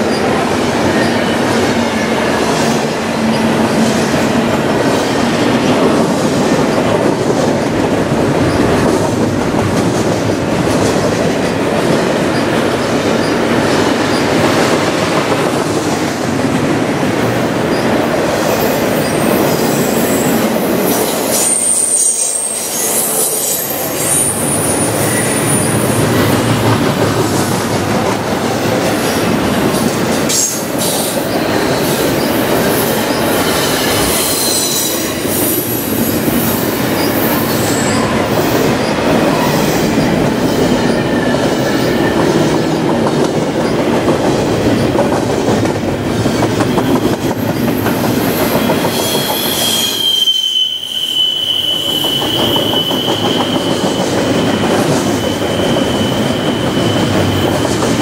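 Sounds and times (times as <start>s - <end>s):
steel wheels rolling on rail: 0.0s - 58.0s
high-pitched wheel squeals: 21.3s - 26.0s, 48.2s - 57.9s.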